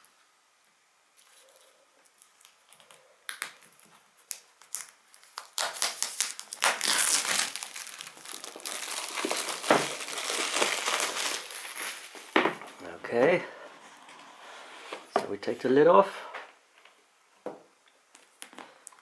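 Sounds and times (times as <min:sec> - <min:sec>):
plastic wrap crinkling: 0:01.2 - 0:12.9.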